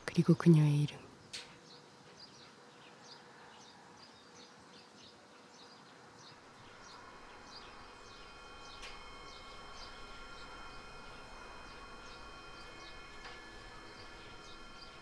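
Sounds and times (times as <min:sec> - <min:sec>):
small birds chirping: 0:00.1 - 0:15.0
faint steady tones: 0:06.0 - 0:15.0
low hiss: 0:06.6 - 0:15.0.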